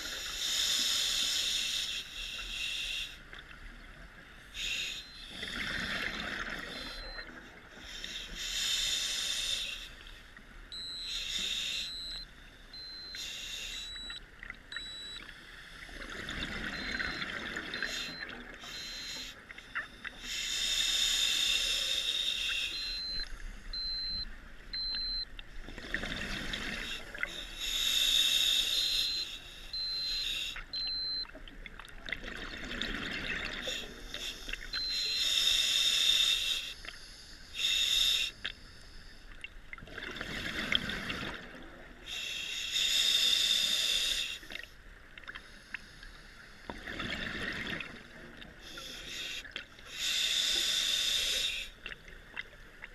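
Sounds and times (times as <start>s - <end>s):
hissing regulator inhale: 0.0s - 3.2s, 4.5s - 14.2s, 16.8s - 19.4s, 20.0s - 24.2s, 26.4s - 31.2s, 33.6s - 39.3s, 42.0s - 44.7s, 45.4s - 46.8s, 48.6s - 51.8s.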